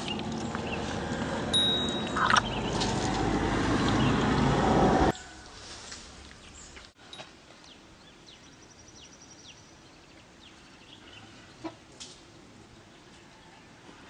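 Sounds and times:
birds chirping: 0.0 - 7.0, 7.6 - 11.8
bird trill: 1.6 - 2.8.

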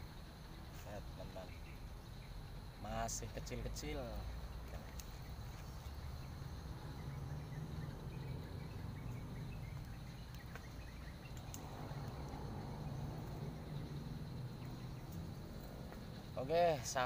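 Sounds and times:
high insect drone: 0.0 - 17.0
faint clicks: 9.8 - 12.4.

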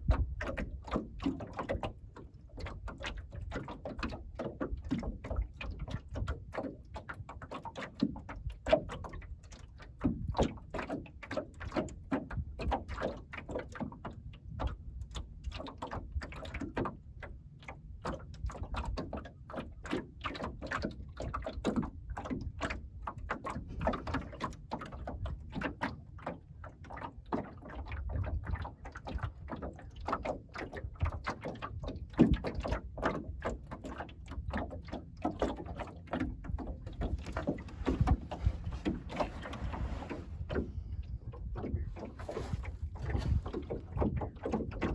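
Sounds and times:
waves slapping wooden hull: 0.0 - 44.9.

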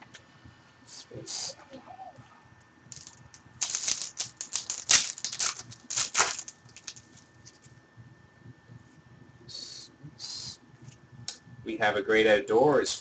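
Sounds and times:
foil wrapper crinkling: 2.9 - 7.7
cards clicking: 3.0 - 7.1.

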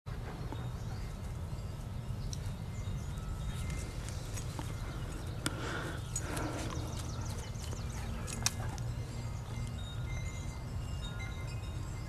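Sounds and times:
dogs rustling on grass: 1.0 - 9.7.

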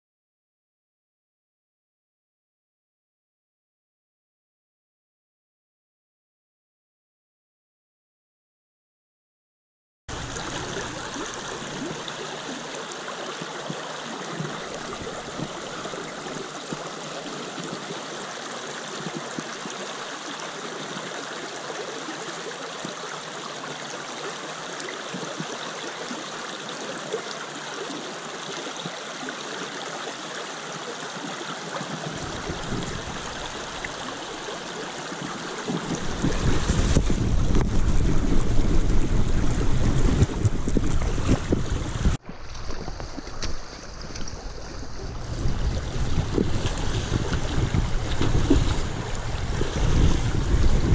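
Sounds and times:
creek water running over stones: 10.1 - 50.9
wind rumble on microphone: 14.3 - 17.8, 32.0 - 34.5, 35.2 - 50.9.

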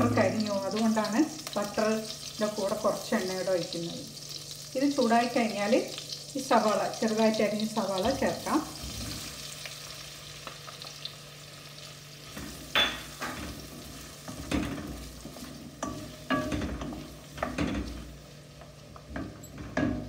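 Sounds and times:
onions sizzling in hot oil: 0.0 - 20.0
wooden spoon scraping and knocking pan: 12.3 - 20.0.

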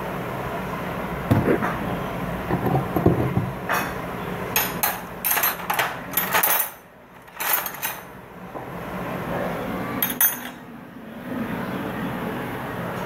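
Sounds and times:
steady low hum: 0.0 - 5.3.

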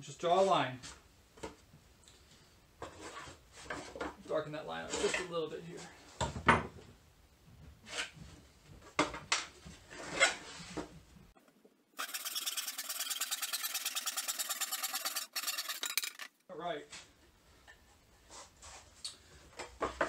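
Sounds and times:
handsaw cutting wood: 12.0 - 16.4.

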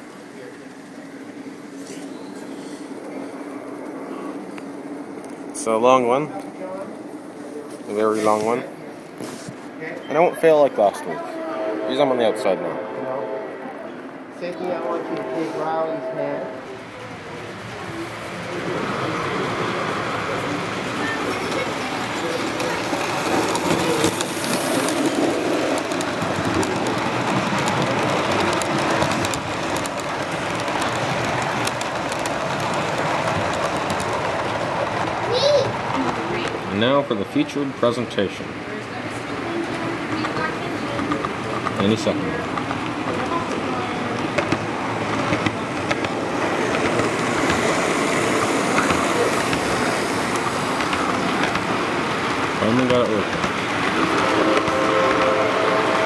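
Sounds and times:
model train wheels rumbling: 14.8 - 56.0.

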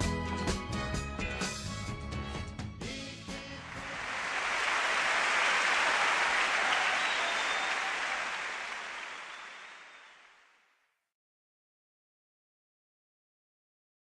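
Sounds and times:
crowd applauding and cheering: 3.6 - 10.5.

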